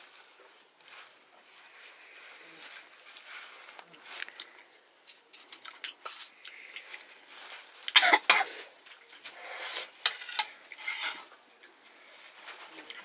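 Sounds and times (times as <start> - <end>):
person coughing: 7.9 - 8.7.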